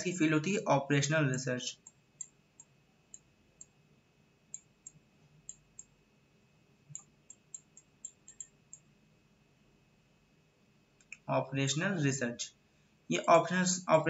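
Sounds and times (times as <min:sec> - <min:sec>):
stylus tapping tablet: 0:06.9 - 0:08.9.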